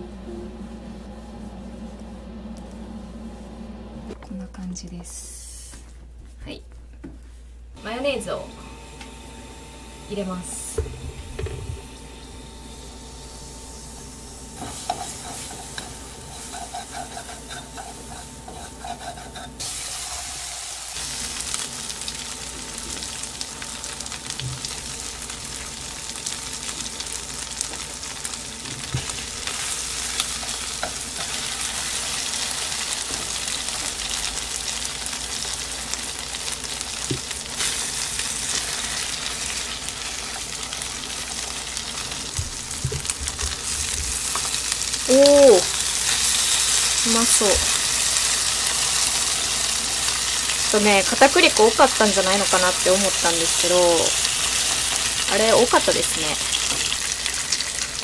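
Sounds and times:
chicken sizzling in frying pan: 19.5 - 58.0.

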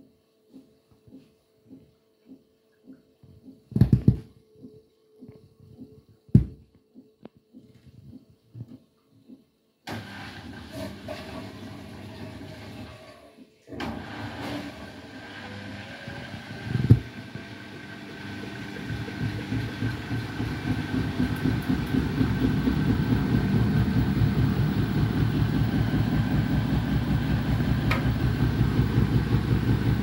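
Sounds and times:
washing machine drum thump: 6.4 - 6.6, 16.8 - 17.1, 18.9 - 30.0
washing machine spinning rumble: 13.8 - 30.0.

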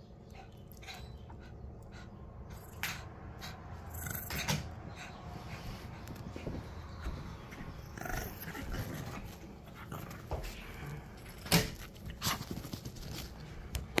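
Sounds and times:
dogs growling: 2.7 - 4.8, 7.5 - 11.4
dogs scuffling: 5.5 - 14.0.

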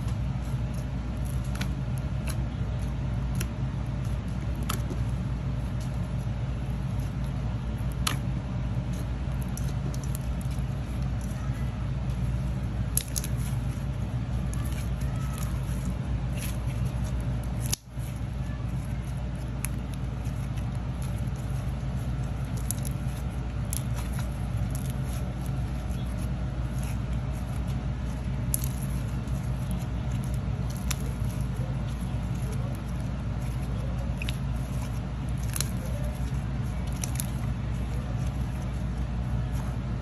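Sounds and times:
slime crackling and popping: 0.0 - 40.0
steady low hum: 0.0 - 40.0.

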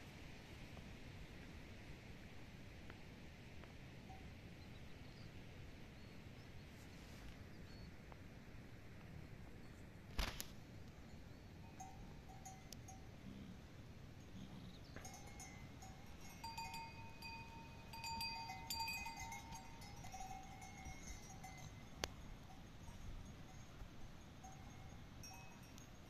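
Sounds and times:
yak bells ringing and clanking: 11.6 - 13.1, 15.0 - 26.0.

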